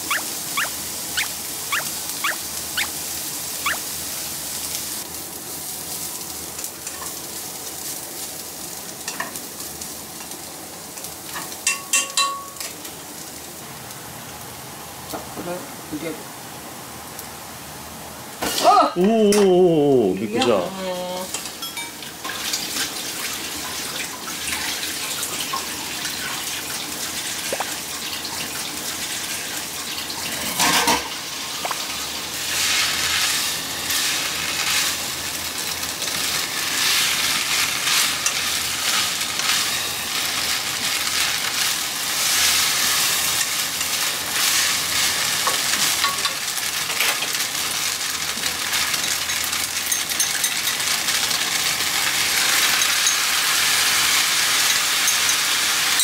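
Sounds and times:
crackling sizzle in a pan: 0.0 - 56.0.

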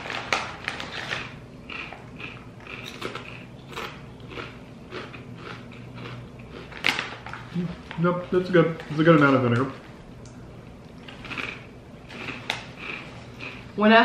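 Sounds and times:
chip bag rustling: 0.0 - 3.9
chips crunching: 0.0 - 13.7.

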